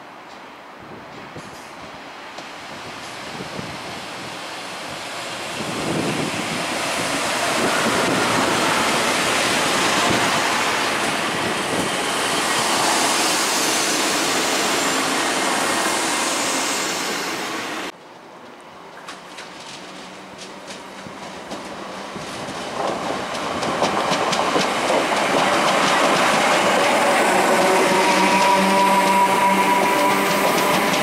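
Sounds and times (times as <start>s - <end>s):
train rushing past: 1.2s - 18.0s, 19.4s - 31.0s
distant train approaching: 1.4s - 18.0s, 18.6s - 31.0s.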